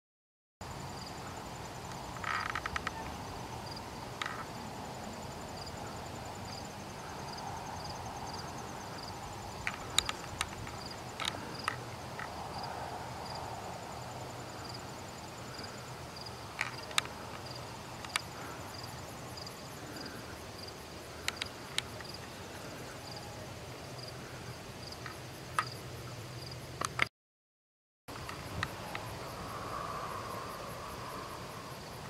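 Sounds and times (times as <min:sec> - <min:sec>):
insect chirping steadily: 0:00.6 - 0:27.1, 0:28.1 - 0:32.0
sharp clicks: 0:09.6 - 0:12.3, 0:26.8 - 0:27.1.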